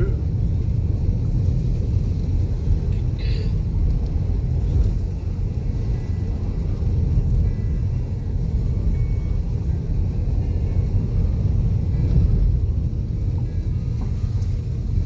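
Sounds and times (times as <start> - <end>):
vehicle engine and tyres rumbling: 0.0 - 15.0.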